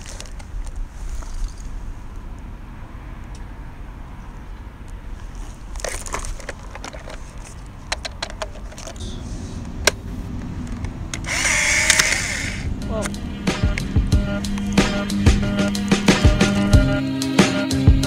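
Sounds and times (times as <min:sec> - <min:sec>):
plastic clicks and rustling: 0:00.0 - 0:01.7, 0:05.2 - 0:09.0
camera motor whirring: 0:11.2 - 0:12.7.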